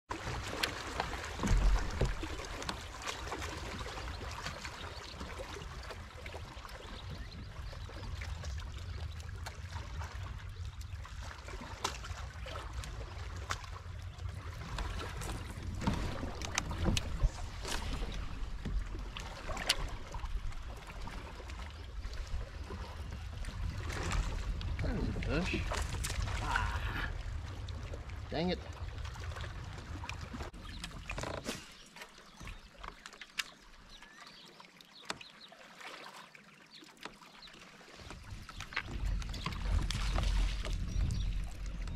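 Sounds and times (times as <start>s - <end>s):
water lapping against hull: 0.1s - 41.9s
low wind rumble: 7.4s - 30.5s, 38.2s - 41.9s.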